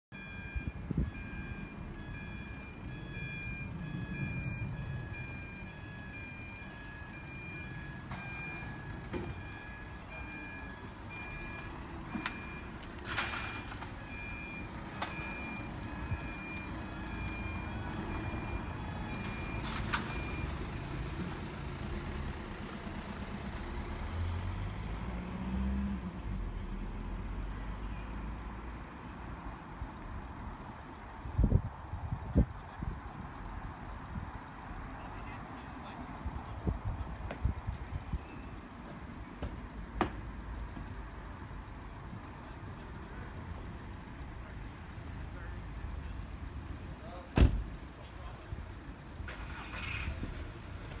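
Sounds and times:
level crossing alarm beeping: 0.1s - 20.7s
low road traffic rumble: 0.1s - 51.0s.

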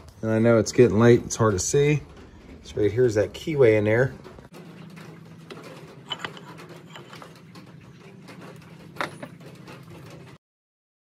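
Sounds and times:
metal parts rubbing: 4.2s - 10.4s.

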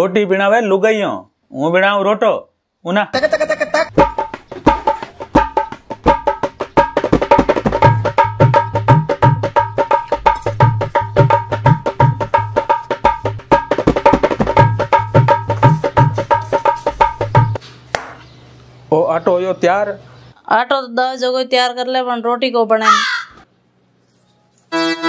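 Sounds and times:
fast percussion rhythm: 3.9s - 17.6s.

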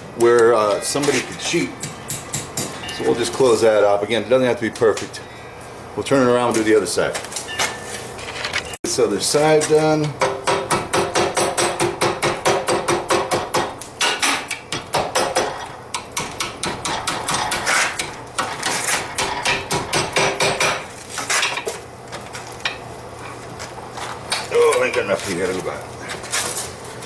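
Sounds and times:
hammer striking hot steel: 1.8s - 3.0s, 10.1s - 20.9s.

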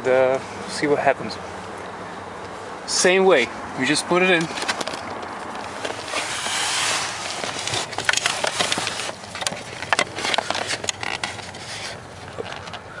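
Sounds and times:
rustling: 4.4s - 12.9s.

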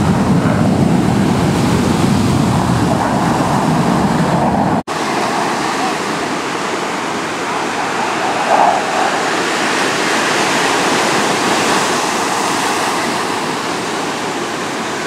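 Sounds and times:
fighter jet roaring past: 0.0s - 15.0s.

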